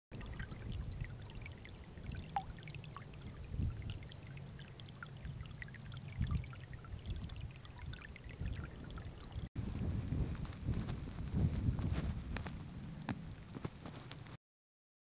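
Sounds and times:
shallow water trickling: 0:00.1 - 0:09.6
water drips: 0:00.2 - 0:09.5.

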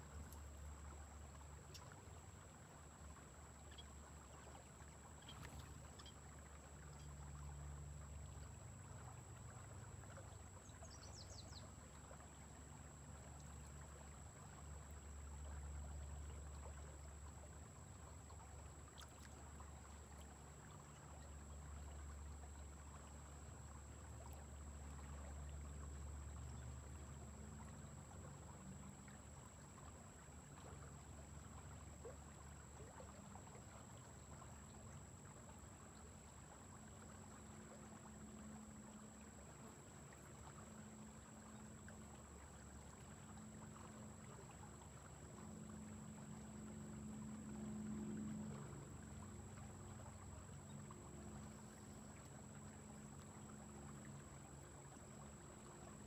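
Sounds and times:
river water flowing: 0:00.0 - 0:56.0.

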